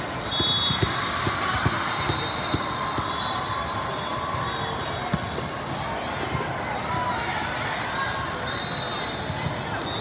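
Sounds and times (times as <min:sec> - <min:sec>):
crowd chatter: 0:00.0 - 0:10.0
volleyballs hit and bouncing: 0:00.1 - 0:03.3
referee's whistle: 0:00.2 - 0:01.0, 0:01.7 - 0:05.4, 0:08.4 - 0:10.0.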